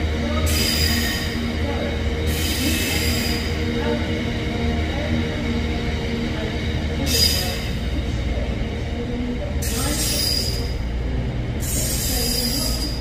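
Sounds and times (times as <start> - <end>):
train wheels rumbling on rail: 0.0 - 13.0
wavering wheel squeal: 9.6 - 10.7, 11.6 - 13.0.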